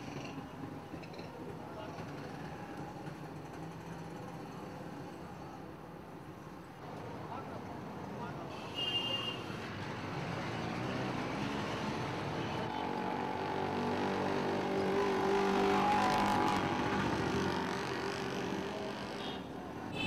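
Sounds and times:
street traffic: 0.0 - 20.0.

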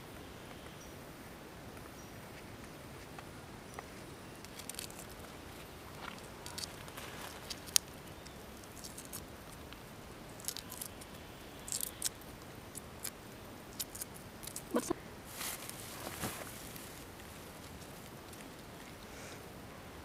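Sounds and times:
egg shell cracking: 4.4 - 5.3, 6.0 - 9.3, 10.4 - 11.0, 11.7 - 14.9.

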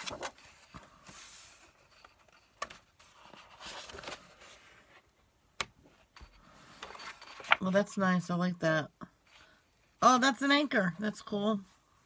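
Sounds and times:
pages turning: 0.0 - 5.1, 6.2 - 7.8.

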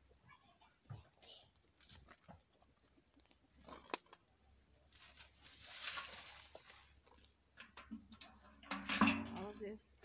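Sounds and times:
soil pouring and rustling: 4.8 - 7.4.

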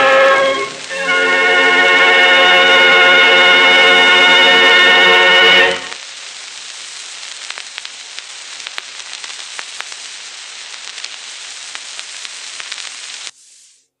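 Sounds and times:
record surface hiss: 0.0 - 14.0.

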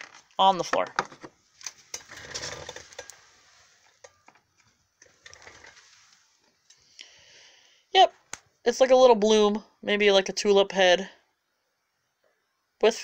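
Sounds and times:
plastic packaging rustling: 0.0 - 6.6.

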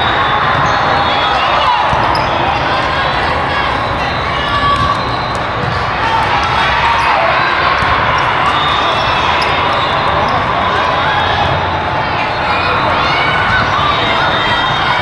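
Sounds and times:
players and spectators chattering: 0.0 - 15.0
volleyballs hit and bouncing: 0.5 - 14.3.

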